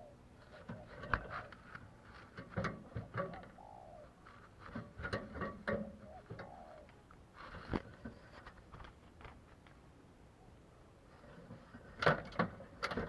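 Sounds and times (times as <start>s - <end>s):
dove cooing: 0.0s - 2.0s, 2.6s - 8.2s
clicks and knocks in wire cage: 0.6s - 3.6s, 4.6s - 6.5s, 11.4s - 13.0s.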